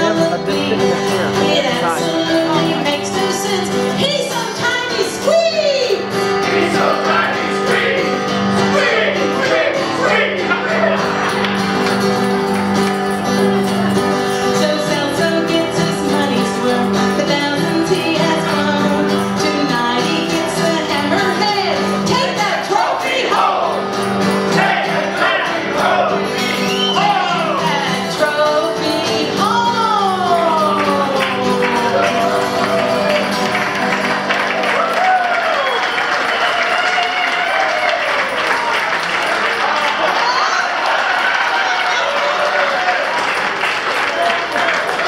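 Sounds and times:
acoustic guitar chords: 0:00.0 - 0:36.4
people singing: 0:04.7 - 0:11.3, 0:14.7 - 0:34.2.

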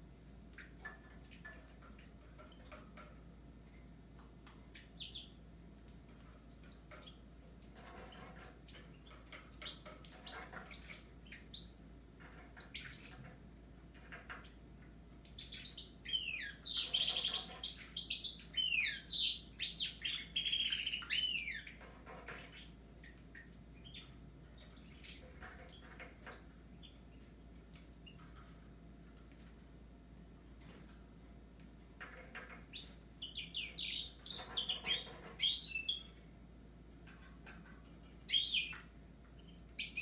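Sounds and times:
birds chirping softly: 0:00.0 - 0:40.0
fast bird song with swooping notes: 0:32.7 - 0:36.1.

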